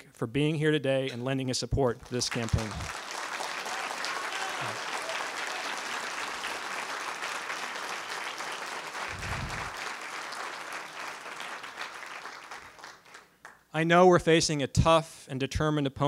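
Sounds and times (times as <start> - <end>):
audience applauding: 2.0 - 13.6.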